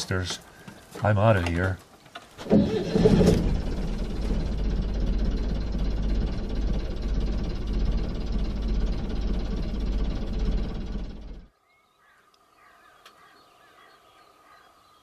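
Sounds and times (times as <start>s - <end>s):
boat engine droning: 2.4s - 11.5s.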